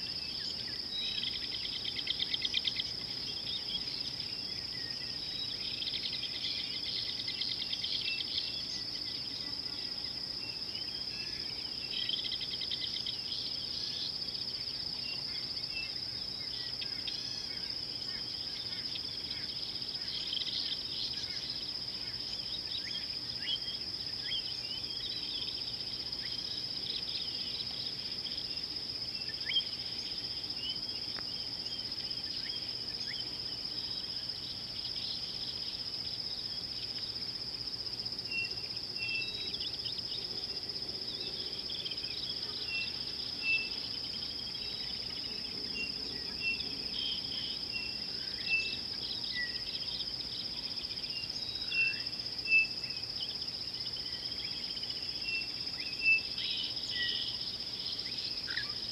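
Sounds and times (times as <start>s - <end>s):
high-pitched insect chorus: 0.0s - 58.9s.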